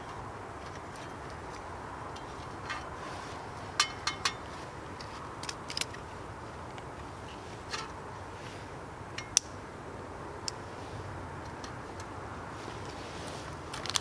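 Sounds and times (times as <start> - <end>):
steady faint hiss: 0.0 - 14.0
camping kit clicking and tapping: 3.7 - 6.0, 13.6 - 14.0.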